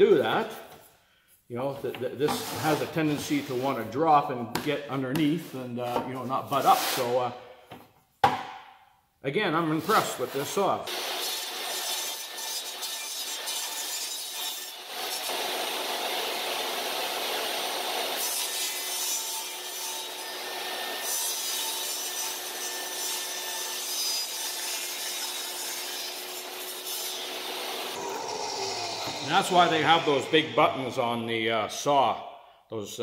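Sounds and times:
table saw cutting sheet: 0:02.3 - 0:03.7, 0:09.8 - 0:31.8.

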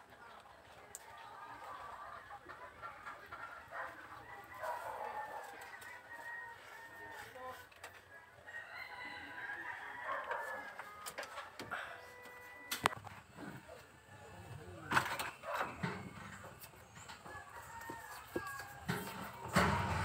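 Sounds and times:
chickens clucking: 0:00.0 - 0:20.0
rooster crowing: 0:04.2 - 0:07.6, 0:08.4 - 0:12.7, 0:15.5 - 0:20.0.

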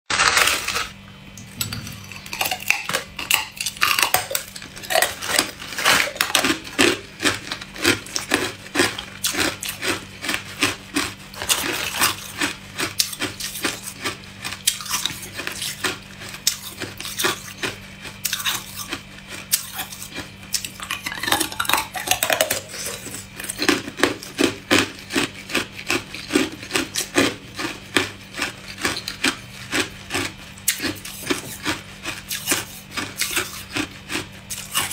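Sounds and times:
ice crunching while chewed: 0:00.1 - 0:34.9
faint low hum: 0:00.2 - 0:15.2.

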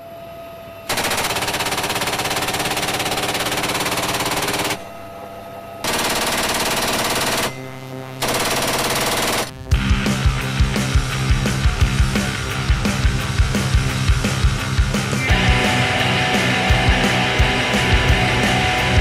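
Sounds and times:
helicopter engine and rotor drone: 0:00.4 - 0:19.0
machine gun firing bursts: 0:00.9 - 0:05.1, 0:05.8 - 0:09.7.

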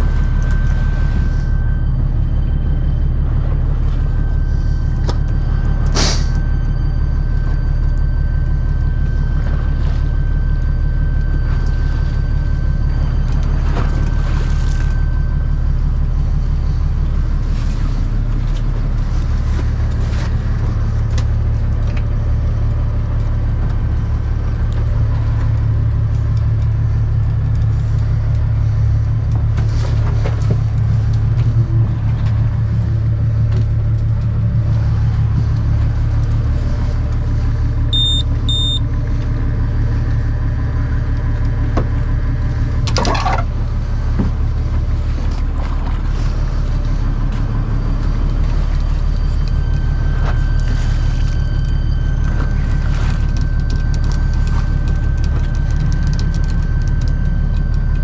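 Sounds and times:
boat engine rumbling: 0:00.0 - 0:58.0
short electronic beeps: 0:37.9 - 0:38.9.

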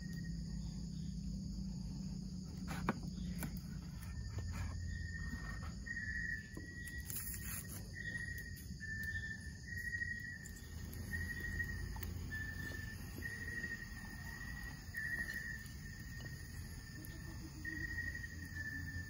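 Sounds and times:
crickets trilling: 0:00.0 - 0:19.0.

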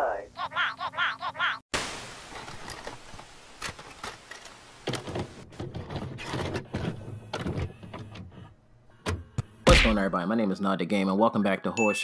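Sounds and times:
tv static hiss: 0:01.8 - 0:05.3.

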